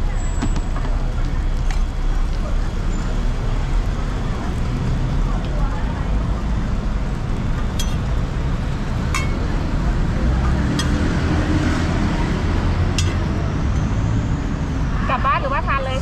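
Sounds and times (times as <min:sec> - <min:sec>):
street traffic rumble: 0:00.0 - 0:16.0
metal spatula tapping steel griddle: 0:09.2 - 0:09.4, 0:10.7 - 0:11.0, 0:13.0 - 0:13.2.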